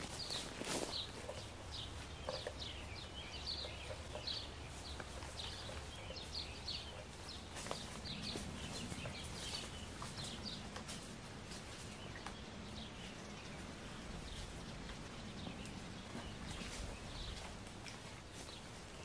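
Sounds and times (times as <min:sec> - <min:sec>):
footsteps on forest floor: 0:00.0 - 0:12.5
small birds chirping: 0:00.0 - 0:19.0.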